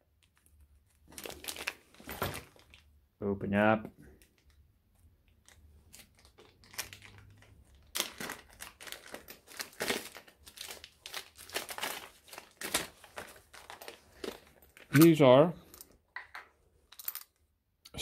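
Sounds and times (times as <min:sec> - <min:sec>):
plastic packaging crinkling: 0:00.2 - 0:02.9, 0:05.4 - 0:14.9.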